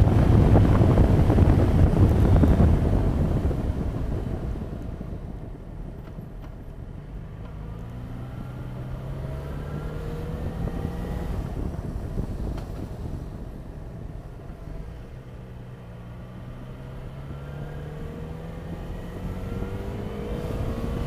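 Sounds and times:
wind rush on microphone: 0.0 - 21.0.

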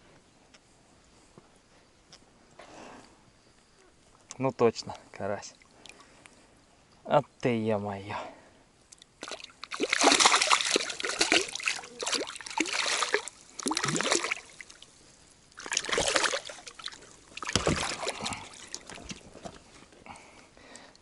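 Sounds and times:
fish splashing at water surface: 9.2 - 14.8, 15.5 - 19.2.

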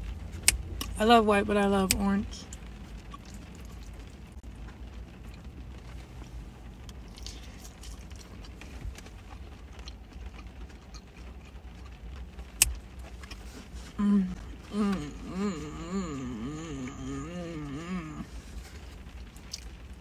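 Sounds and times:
low hum inside car: 0.0 - 20.0
chewing: 3.0 - 5.5, 6.9 - 19.8.

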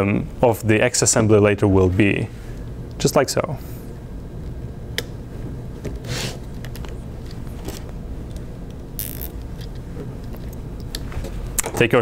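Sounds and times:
zip tie clicks: 9.0 - 9.4
zip tie rasps: 9.0 - 9.4.

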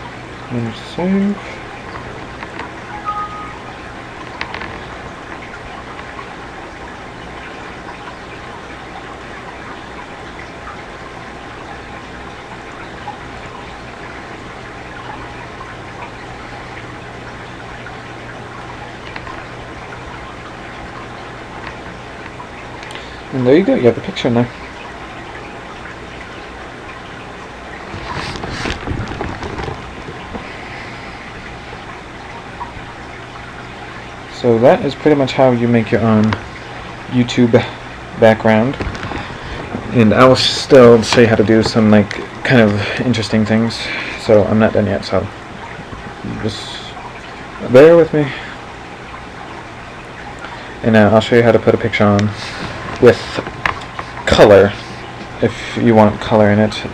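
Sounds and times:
room noise hiss: 0.0 - 56.9
microphone hum and hiss: 27.0 - 48.9.

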